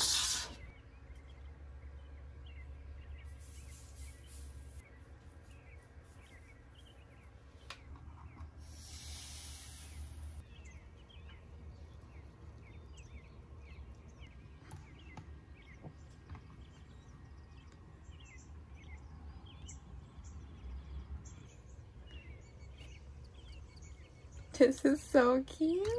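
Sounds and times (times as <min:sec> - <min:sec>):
faint birds chirping: 0:00.0 - 0:25.9
low steady hum: 0:00.0 - 0:25.9
brief hiss: 0:08.6 - 0:10.4.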